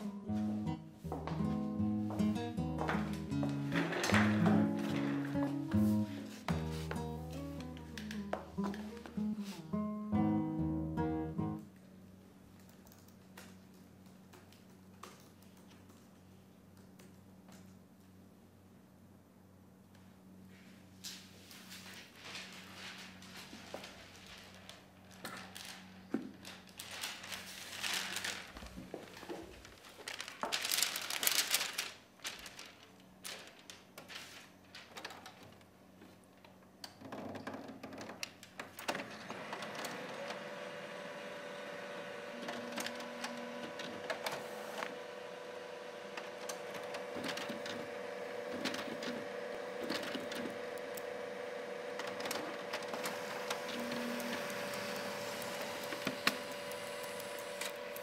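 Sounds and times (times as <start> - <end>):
paper rustling: 2.8 - 9.7, 21.1 - 35.7, 38.6 - 58.0
laptop keyboard typing: 51.8 - 58.0.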